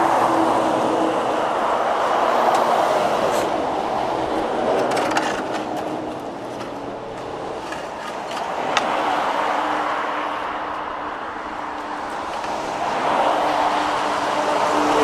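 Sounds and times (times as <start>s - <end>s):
vehicles passing: 0.0s - 15.0s.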